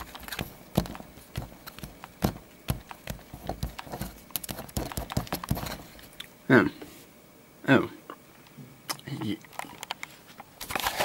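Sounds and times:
fingernails tapping on cardboard: 0.0 - 5.8.

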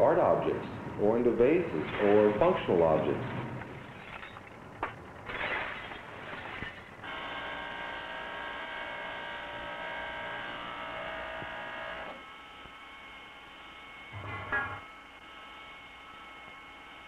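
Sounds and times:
rough noisy sound: 0.0 - 12.2.

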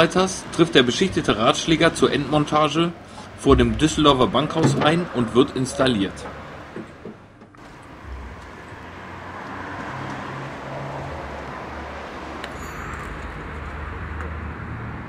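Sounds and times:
vehicle engine running: 0.0 - 10.7
road noise: 0.0 - 15.0.

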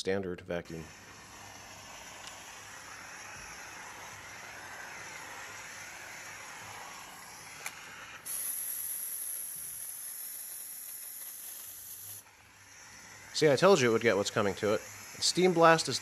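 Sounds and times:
steam mop hissing: 0.7 - 16.0
sharp steam blast hiss: 0.8 - 12.2.

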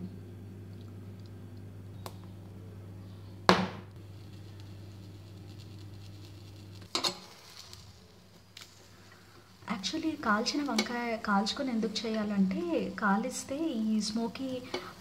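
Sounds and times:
steady low hum: 0.0 - 15.0
metal utensils clanking on grate: 6.9 - 7.3.

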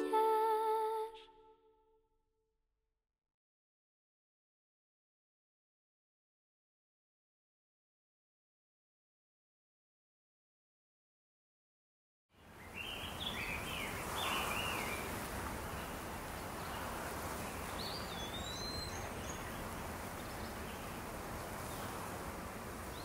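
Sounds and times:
background hiss: 12.4 - 23.0
small birds chirping: 12.4 - 23.0
whistled bird calls: 12.6 - 15.1, 17.5 - 19.6.

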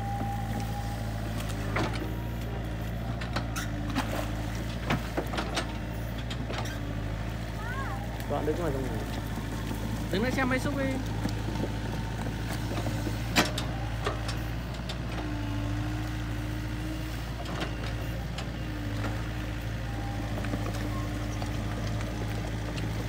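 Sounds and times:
bucket working through mud: 0.0 - 6.8
excavator diesel engine: 0.0 - 23.0.

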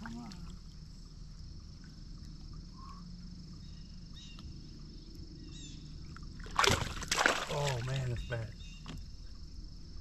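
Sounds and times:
high-pitched insect trill: 0.0 - 10.0
bird chirps: 5.4 - 5.9, 8.0 - 9.0.

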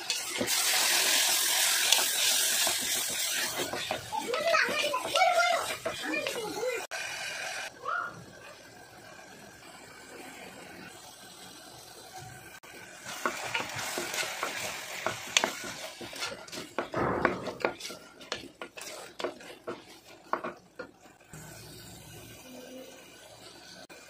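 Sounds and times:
wooden spoon scraping pot: 0.0 - 6.9, 13.1 - 21.2
food sizzling: 0.0 - 24.0.

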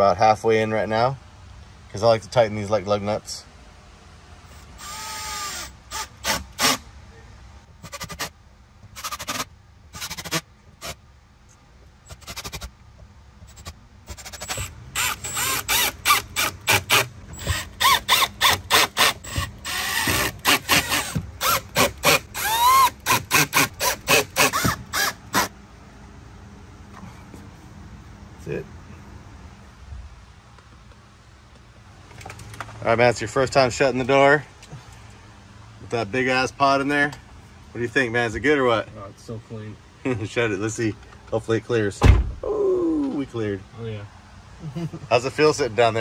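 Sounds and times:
cordless drill whining: 4.5 - 6.8, 14.1 - 25.5.

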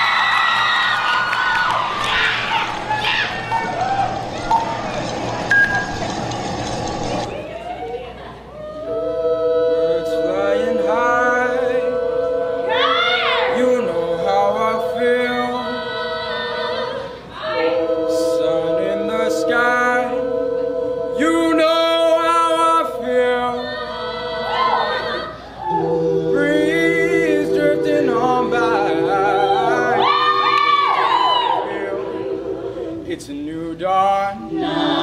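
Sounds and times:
a cappella group singing: 8.6 - 35.0.

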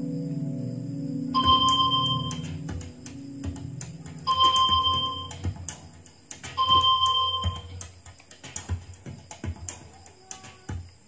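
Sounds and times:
electronic game music: 0.0 - 9.8
held beep tone: 1.4 - 2.5, 4.2 - 5.5, 6.6 - 7.8
game clicks: 1.4 - 10.7.

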